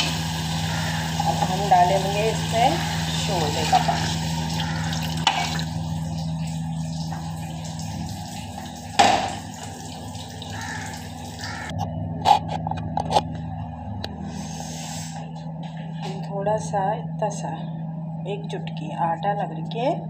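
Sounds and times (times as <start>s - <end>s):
steady low hum: 0.0s - 20.0s
liquid pouring into a pot: 2.6s - 11.4s.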